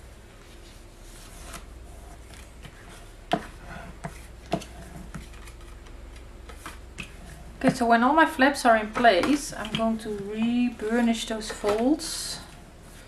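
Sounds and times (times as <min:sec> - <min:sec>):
low steady hum: 0:00.0 - 0:13.0
paper rustling: 0:04.1 - 0:06.8.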